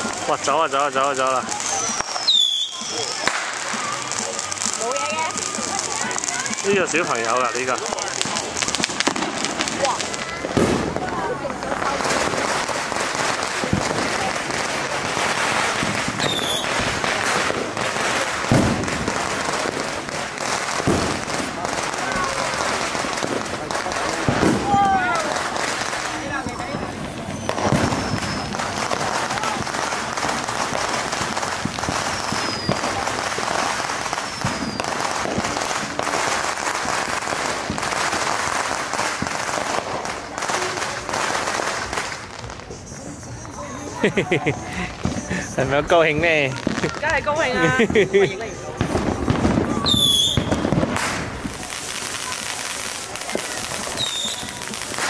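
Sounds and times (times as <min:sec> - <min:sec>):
firecrackers crackling: 0:00.0 - 0:55.0
firework whistle: 0:01.1 - 0:11.0, 0:12.1 - 0:44.0, 0:48.8 - 0:55.0
firework boom: 0:05.6 - 0:19.8, 0:26.2 - 0:33.6.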